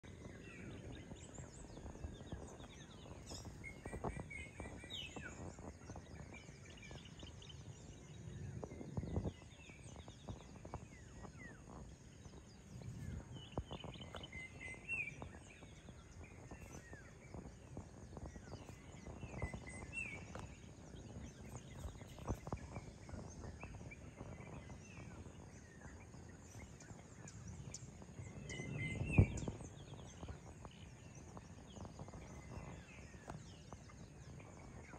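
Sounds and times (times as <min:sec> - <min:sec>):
birds chirping: 0:00.0 - 0:34.9.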